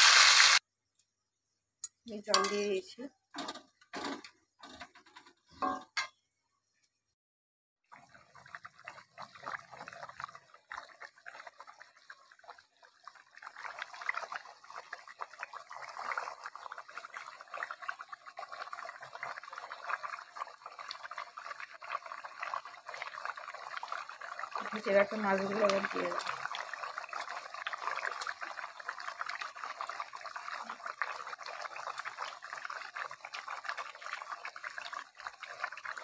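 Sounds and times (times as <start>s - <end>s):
curry bubbling: 7.8s - 36.0s.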